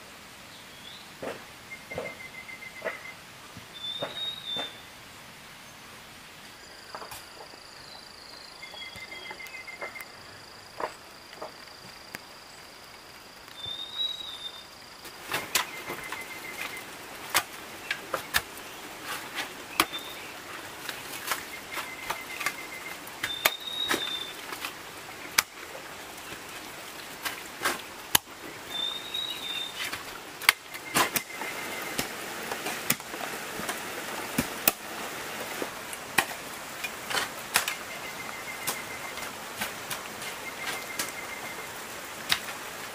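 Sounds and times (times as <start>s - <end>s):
outdoor noise: 0.0s - 42.9s
high insect-like tone: 13.6s - 17.0s.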